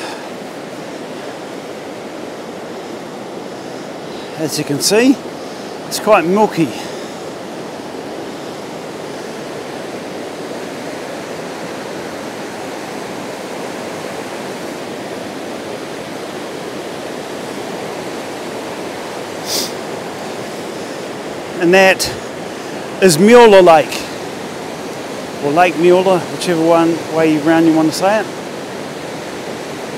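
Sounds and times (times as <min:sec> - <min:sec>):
river rushing: 0:00.0 - 0:29.9
short hiss: 0:19.4 - 0:19.8.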